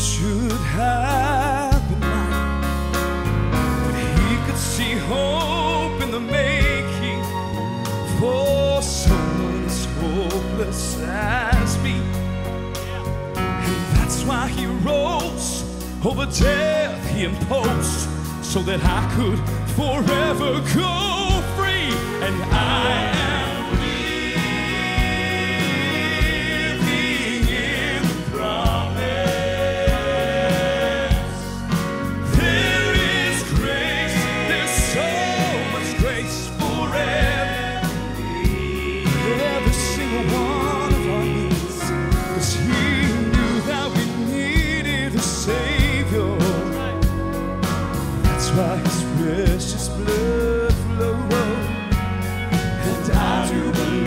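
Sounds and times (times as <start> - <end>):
male vocal quartet singing gospel: 0.0 - 54.0
piano and band: 0.0 - 54.0
drums keeping a steady beat: 20.0 - 54.0.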